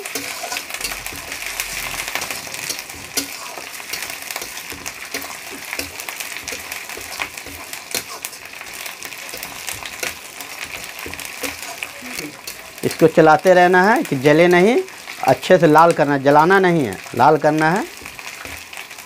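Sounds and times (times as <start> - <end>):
metal spatula scraping pan: 0.0 - 13.9
food sizzling in hot oil: 0.0 - 19.0.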